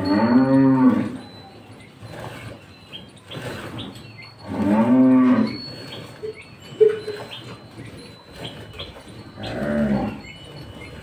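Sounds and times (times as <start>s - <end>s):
cow mooing: 0.0s - 1.2s, 4.4s - 5.6s, 9.4s - 10.3s.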